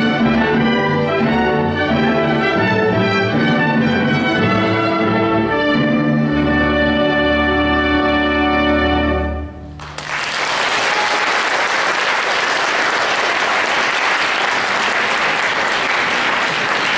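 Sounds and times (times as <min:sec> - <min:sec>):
audience applause: 0:09.8 - 0:16.9.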